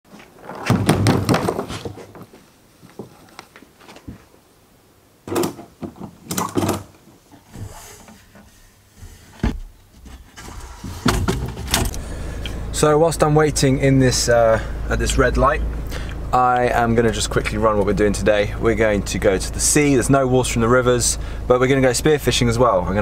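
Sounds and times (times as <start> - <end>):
clunks and knocks of poles: 0.5 - 2.3, 5.3 - 12.0.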